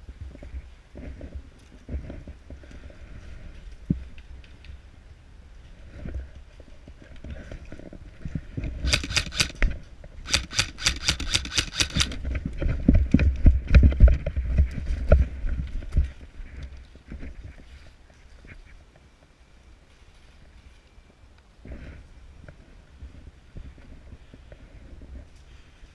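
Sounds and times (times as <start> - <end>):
running footsteps on dirt and leaves: 8.9 - 9.7, 10.3 - 12.9.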